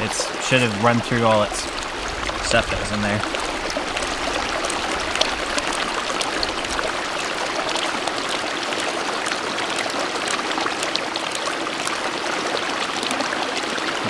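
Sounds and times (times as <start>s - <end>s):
stream running over stones: 0.0s - 14.0s
faint ticks: 1.6s - 12.0s.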